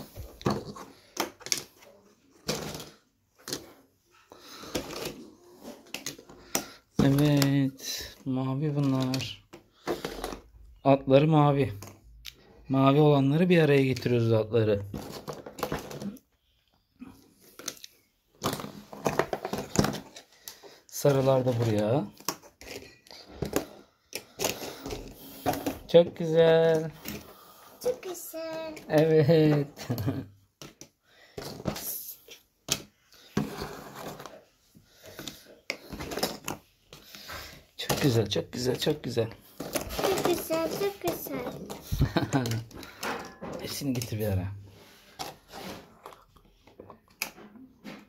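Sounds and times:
puzzle pieces clicking and rustling: 4.4 - 10.5, 14.9 - 16.3, 17.4 - 44.4
puzzle pieces tapping and clicking: 39.6 - 44.2.

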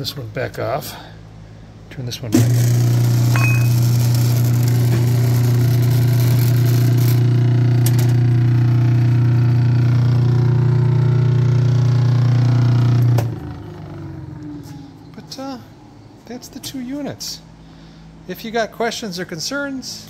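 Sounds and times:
meat grinder motor humming: 2.4 - 14.8.

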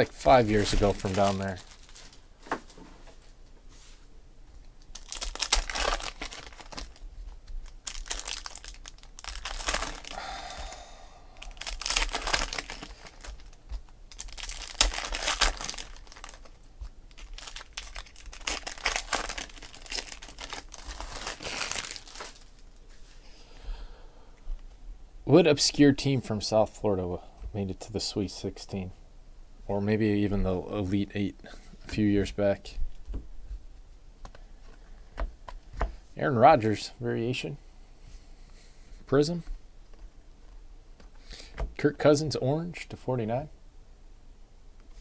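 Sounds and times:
foil wrappers tearing and crinkling: 0.2 - 2.2, 4.9 - 10.2, 11.4 - 22.7.

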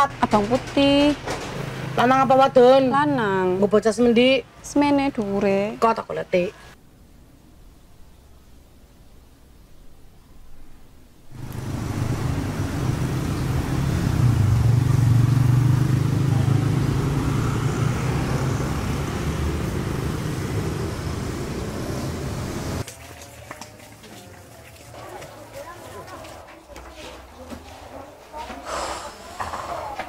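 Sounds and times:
road traffic noise: 0.0 - 6.8, 11.3 - 30.0
vehicle engine running close by: 11.3 - 22.8.

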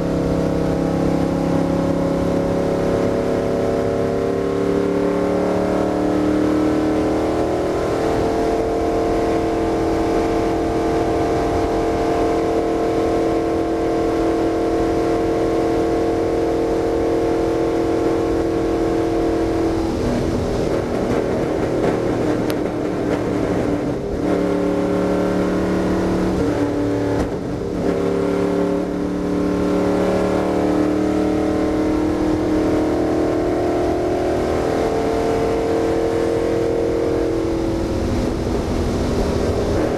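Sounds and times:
car engine at high revs: 0.0 - 39.9.

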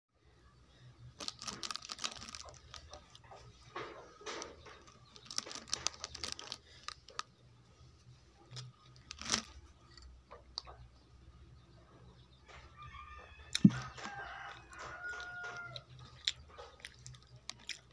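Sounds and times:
plastic wrap crinkling: 1.2 - 3.2, 4.4 - 7.3, 8.5 - 9.6.

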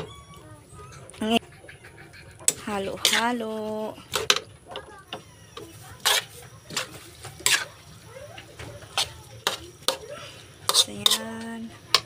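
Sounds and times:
spatula scraping metal wok: 2.4 - 4.5, 5.1 - 12.0.

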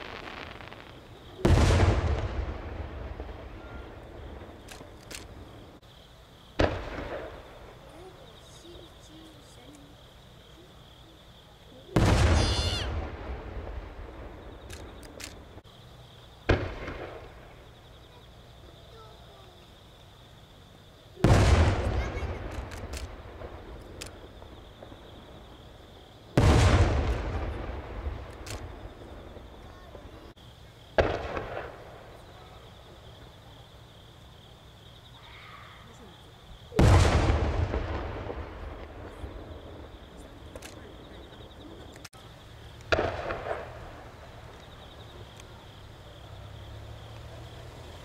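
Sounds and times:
firework cracks: 0.0 - 5.8, 6.5 - 9.9, 11.9 - 15.7, 16.4 - 17.8, 21.2 - 33.5, 36.6 - 45.8
firework shells booming: 0.0 - 5.8, 6.5 - 9.6, 11.9 - 15.7, 16.4 - 17.8, 21.2 - 33.5, 36.6 - 42.1, 42.7 - 47.4
steady low background noise: 0.0 - 48.0.

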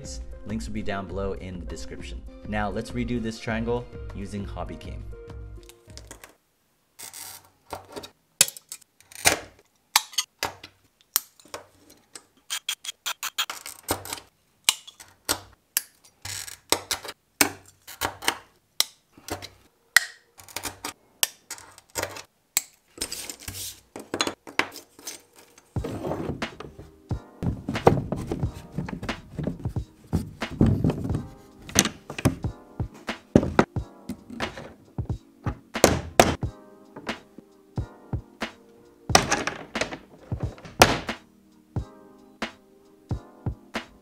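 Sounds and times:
glass and tools clicking: 10.0 - 10.3
rough handling noise: 22.9 - 36.4, 39.1 - 41.2.

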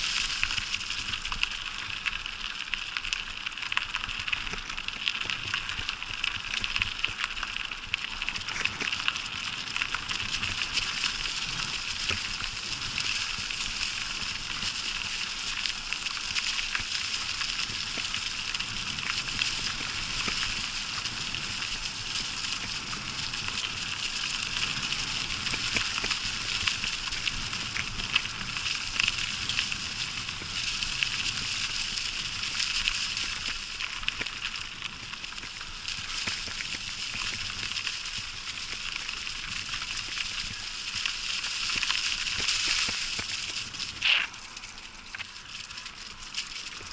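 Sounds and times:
bicycle tyres rolling through dry leaves: 0.0 - 46.9.

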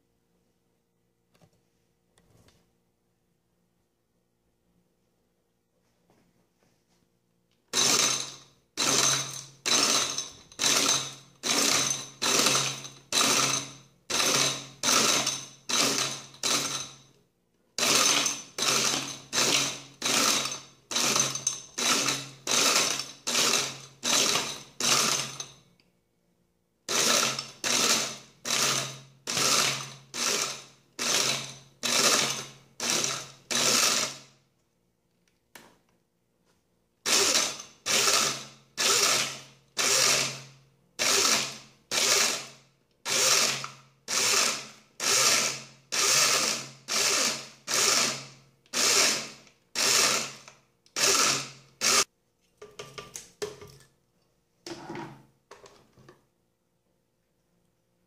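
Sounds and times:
blender crushing ice in bursts: 7.7 - 17.0, 17.8 - 25.6, 26.9 - 34.4, 37.0 - 52.1.

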